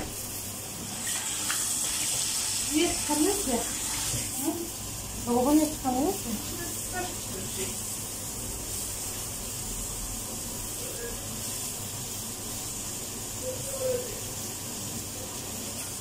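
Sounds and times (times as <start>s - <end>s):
steady hissing: 0.0s - 16.0s
faint voices: 13.4s - 14.3s.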